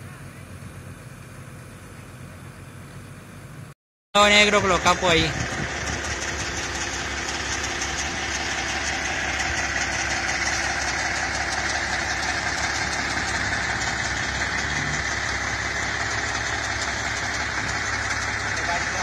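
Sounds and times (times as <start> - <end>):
truck diesel engine running: 0.0 - 19.0.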